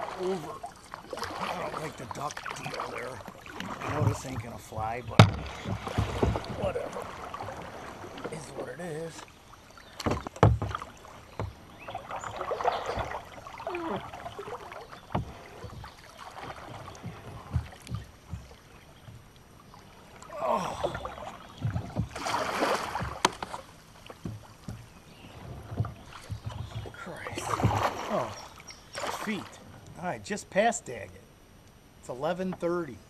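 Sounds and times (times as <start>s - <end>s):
paddle splashing through water: 0.0s - 30.0s
knocks against kayak hull: 3.6s - 8.6s, 9.9s - 13.3s, 15.0s - 19.3s, 21.0s - 24.9s, 25.5s - 28.0s.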